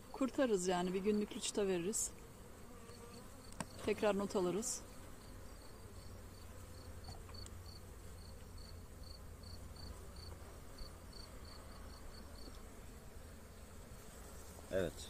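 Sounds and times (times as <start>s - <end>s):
honeybees humming: 0.0s - 15.0s.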